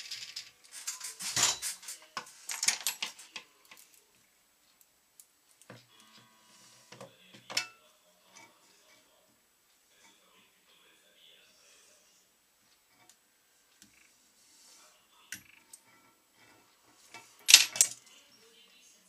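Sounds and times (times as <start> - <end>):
small tools clicking and tapping: 0.0 - 4.0, 17.1 - 18.0.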